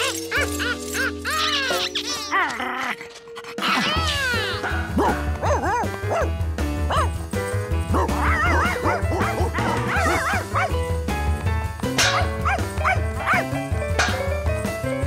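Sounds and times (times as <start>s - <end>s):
cartoon dogs yipping and barking: 0.0s - 6.3s, 6.9s - 7.2s, 7.8s - 10.8s, 12.0s - 14.3s
bouncy band music: 4.6s - 15.0s.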